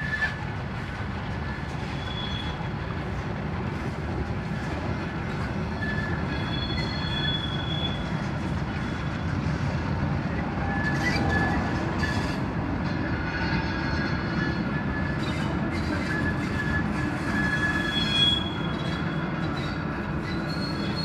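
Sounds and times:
train wheels rumbling: 0.0s - 21.0s
high wheel squeals: 1.5s - 2.7s, 5.4s - 9.4s, 10.6s - 12.4s, 13.4s - 21.0s.

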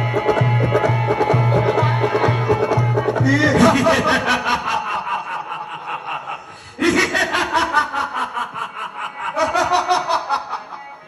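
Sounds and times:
man laughing theatrically: 3.6s - 11.0s.

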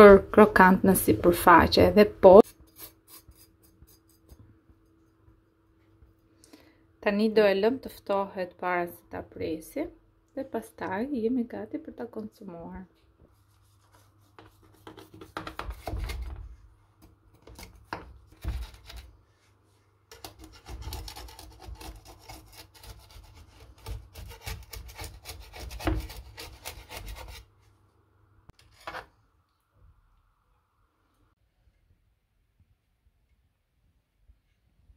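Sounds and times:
knife sawing through crisp crust: 2.4s - 4.3s, 20.1s - 27.5s
knife rasping on metal pan: 2.4s - 4.4s, 20.1s - 27.5s.

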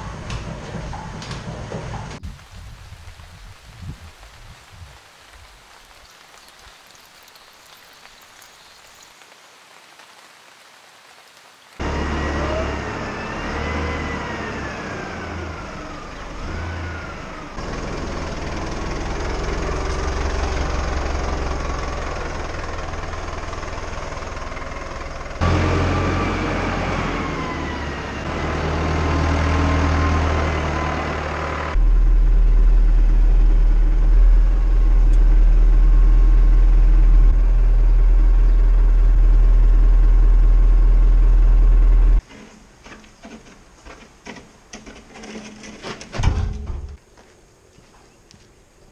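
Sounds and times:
tractor diesel engine running: 11.8s - 42.2s
loud low drone in cab: 30.7s - 42.2s.

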